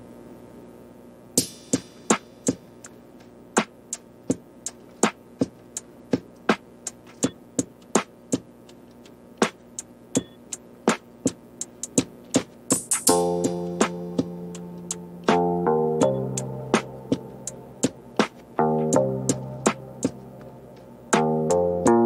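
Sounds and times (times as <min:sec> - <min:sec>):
clicking percussion beat: 0:01.4 - 0:22.0.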